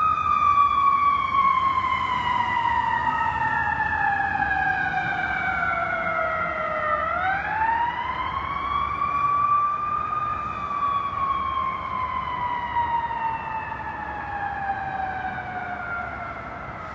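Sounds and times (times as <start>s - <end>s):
emergency siren wailing: 0.0s - 16.9s.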